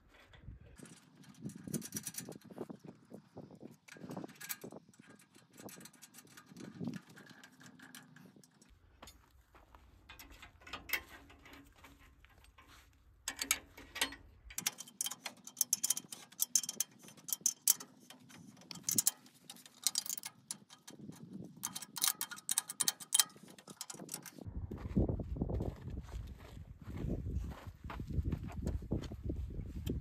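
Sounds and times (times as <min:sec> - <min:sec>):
spanner clicking on bolts: 0:13.3 - 0:24.5.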